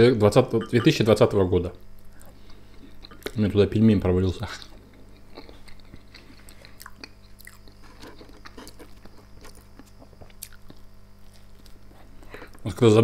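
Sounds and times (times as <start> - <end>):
low electrical hum: 0.0 - 13.0
person chewing food: 2.1 - 3.4, 4.6 - 12.6.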